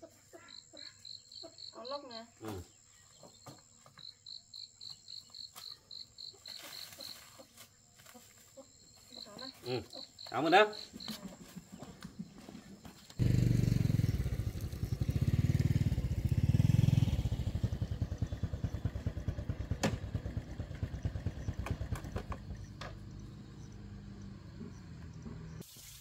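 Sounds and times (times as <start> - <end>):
motorbike engine chugging: 13.2 - 23.8.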